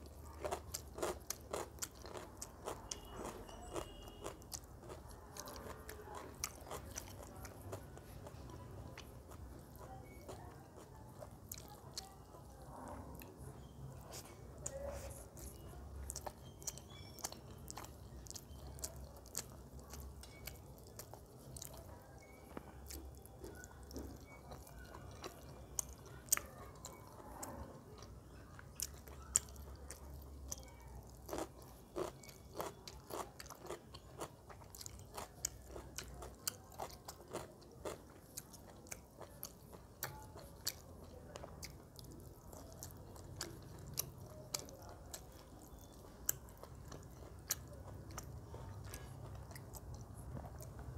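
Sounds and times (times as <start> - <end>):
wet chewing and mouth sounds: 0.0 - 50.9
crunching raw cucumber: 0.4 - 8.4, 31.2 - 50.9.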